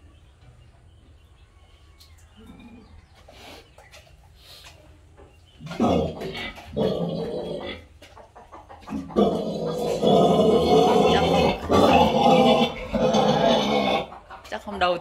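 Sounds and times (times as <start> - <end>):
pig squealing loudly: 9.1 - 14.1.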